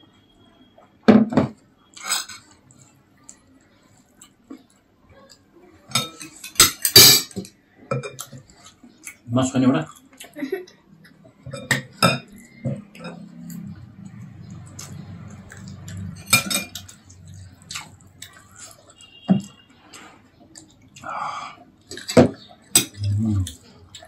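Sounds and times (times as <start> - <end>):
spoons clinking on ceramic plates: 5.9 - 8.4, 16.2 - 17.0
eating noises: 12.3 - 24.0.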